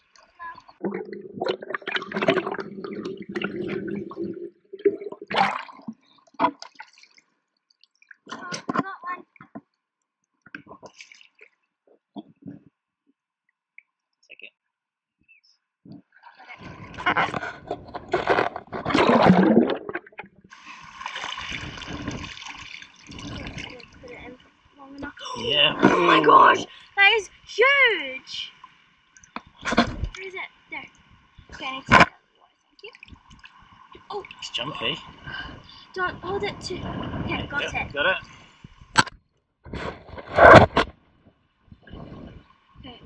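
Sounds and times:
seawater sloshing and splashing: 0.0 - 8.8, 10.9 - 11.5, 16.2 - 24.7
water sloshing underwater: 0.0 - 12.8, 15.9 - 43.0
water streaming through net: 0.2 - 7.2, 16.3 - 26.8.

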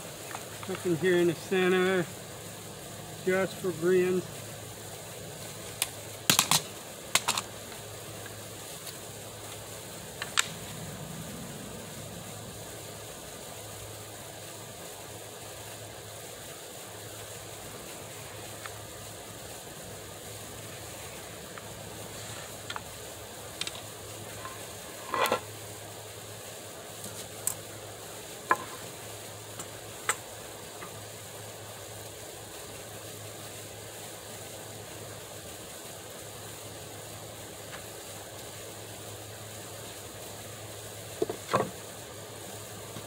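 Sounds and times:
steady hiss: 0.0 - 43.0
sharp knocks and clicks: 6.3 - 7.4
low hum: 6.8 - 25.9.

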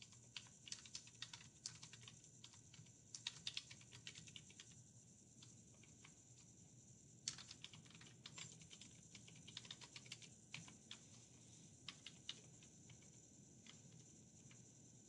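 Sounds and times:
faint keyboard typing: 0.0 - 6.6, 7.2 - 14.8.

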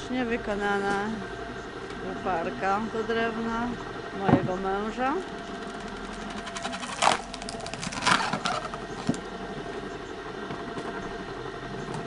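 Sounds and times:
electric motor hum: 0.0 - 12.0
log splitting burst: 5.5 - 9.2.

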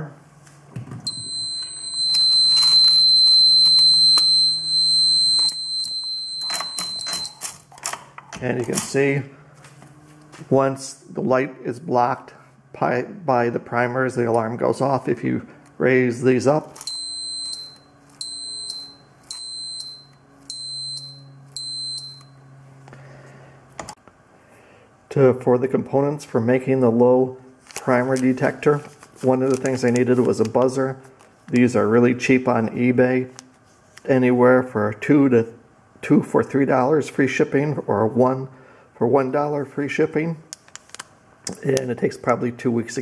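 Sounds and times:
high-pitched buzzer tone: 1.1 - 7.4, 16.9 - 22.6.

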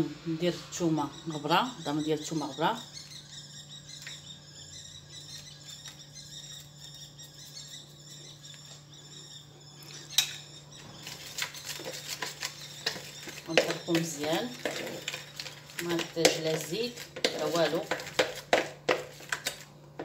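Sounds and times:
faint steady hum: 0.0 - 20.0
faint high chirping: 0.6 - 16.6
spoon scraping plastic bowl: 10.0 - 19.7.

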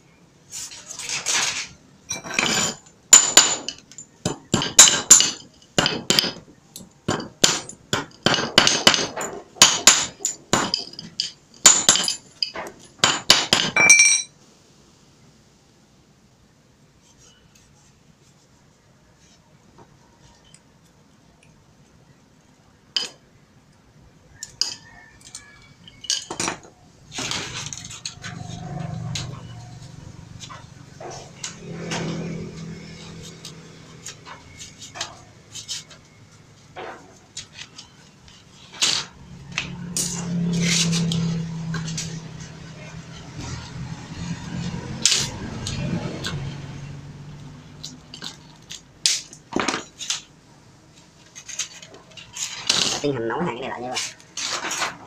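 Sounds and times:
metal scraping: 24.6 - 47.1.

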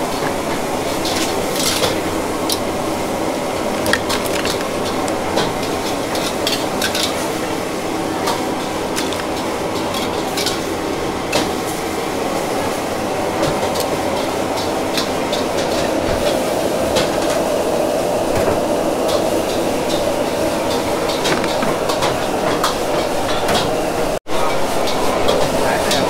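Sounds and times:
dishes and utensils clattering: 1.0 - 2.6, 3.6 - 7.4, 8.2 - 10.6, 20.6 - 23.7.

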